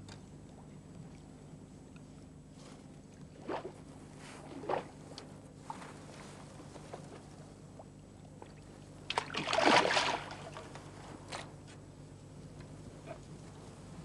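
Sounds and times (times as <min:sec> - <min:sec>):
fish thrashing and splashing: 0:09.1 - 0:10.8.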